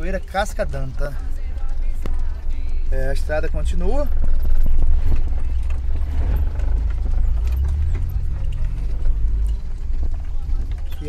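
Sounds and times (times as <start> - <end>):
vehicle rumble on dirt road: 0.0 - 11.0
knocks and rattles: 4.0 - 11.0.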